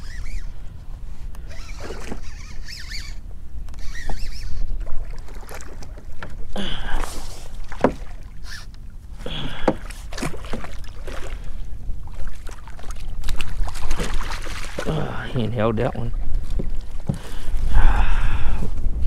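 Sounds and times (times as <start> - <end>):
fish splashing in water: 9.5 - 14.9.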